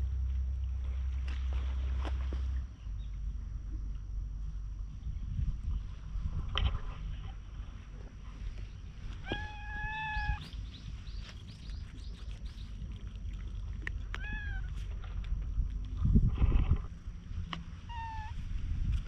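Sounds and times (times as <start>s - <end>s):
wind rumbling on microphone: 0.0s - 19.0s
cat meowing: 9.2s - 10.5s, 14.2s - 14.8s, 17.9s - 18.4s.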